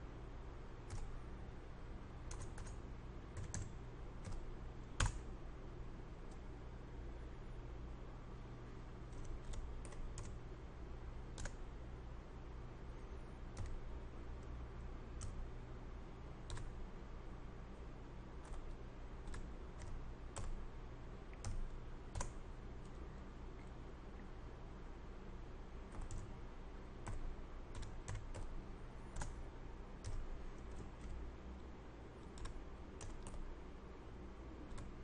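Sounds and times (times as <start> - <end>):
faint steady hum: 0.0 - 35.0
computer keyboard keystrokes: 0.8 - 1.2, 2.3 - 5.3, 9.1 - 10.4, 11.3 - 11.7, 13.5 - 13.8, 15.2 - 15.5, 16.4 - 16.8, 18.4 - 20.6, 21.3 - 23.0, 25.9 - 26.3, 27.0 - 29.4, 30.0 - 31.2, 32.2 - 33.5, 34.7 - 34.9.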